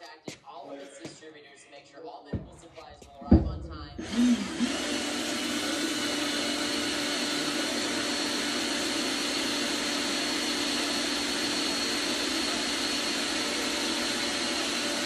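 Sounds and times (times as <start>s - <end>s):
electric motor whirring: 4.0s - 15.0s.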